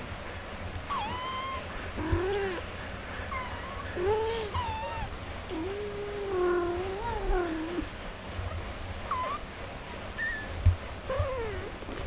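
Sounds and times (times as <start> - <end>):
cats meowing: 0.9 - 7.9, 9.0 - 9.5, 10.2 - 11.8.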